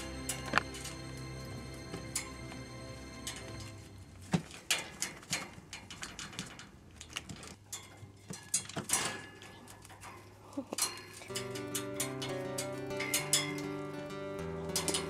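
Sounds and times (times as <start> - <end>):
wire cage clicking and rattling: 0.0 - 1.2, 1.8 - 15.0
background music: 0.0 - 4.3, 11.3 - 15.0.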